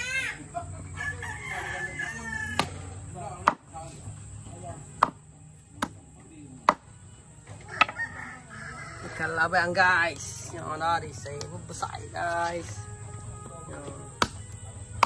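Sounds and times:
machete chopping on wooden block: 0:02.6 - 0:03.7, 0:05.0 - 0:06.0, 0:06.6 - 0:06.9, 0:14.2 - 0:15.0.

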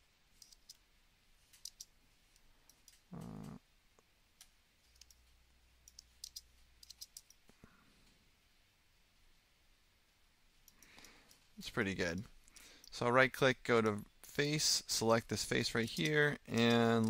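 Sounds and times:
computer mouse clicks: 0:00.4 - 0:00.8, 0:01.5 - 0:03.6, 0:04.4 - 0:07.5, 0:10.6 - 0:11.4.

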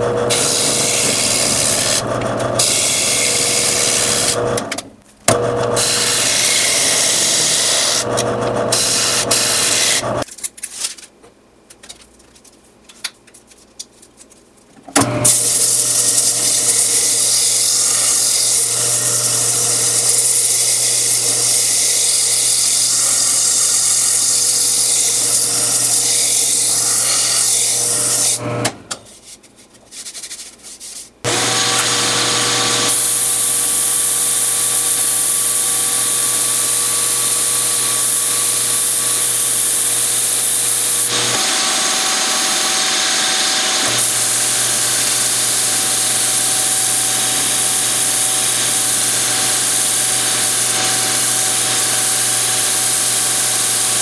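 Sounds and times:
lathe motor hum: 0:00.0 - 0:10.2, 0:15.2 - 0:28.8, 0:31.3 - 0:54.0.

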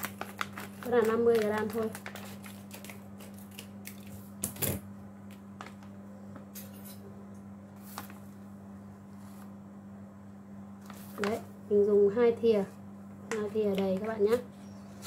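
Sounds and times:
plastic packet crinkling: 0:00.0 - 0:04.2
plastic packet rustle: 0:00.0 - 0:04.3, 0:10.8 - 0:11.5
low electrical hum: 0:00.0 - 0:15.0.

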